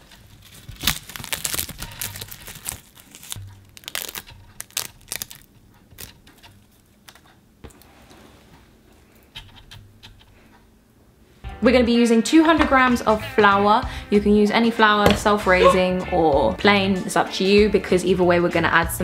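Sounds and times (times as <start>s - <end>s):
seaweed sheet crinkling and tearing: 0.0s - 7.3s.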